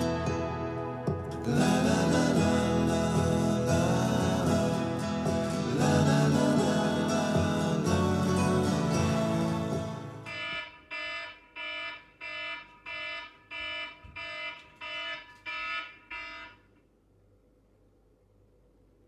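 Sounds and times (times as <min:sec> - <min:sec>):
background music: 0:00.0 - 0:10.4
electronic alarm beeping: 0:10.3 - 0:16.6.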